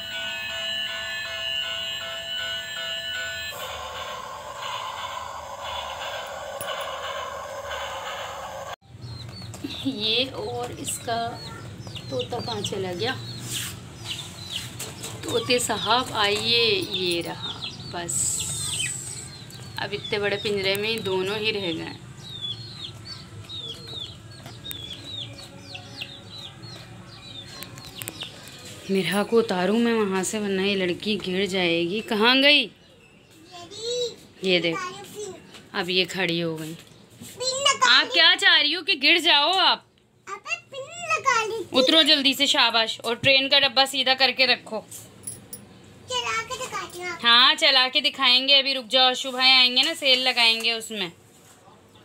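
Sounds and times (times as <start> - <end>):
toy train electronic beeping tune: 0.0 - 8.8
toy steam hiss: 3.5 - 8.8.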